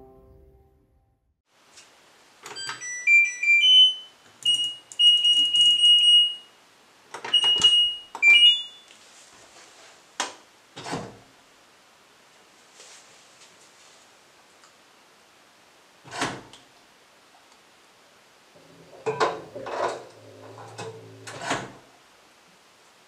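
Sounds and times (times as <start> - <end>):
washing machine panel beeping: 2.5 - 6.5, 7.2 - 8.9.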